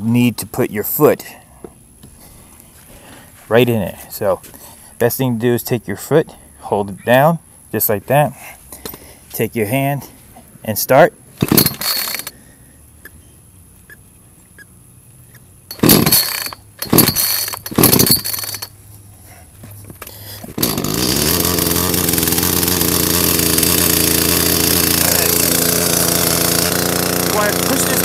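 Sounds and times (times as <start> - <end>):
chainsaw engine running: 11.4 - 12.3, 15.7 - 18.7, 20.2 - 28.0
recoil starter cord rips: 15.7 - 18.7, 19.9 - 28.0.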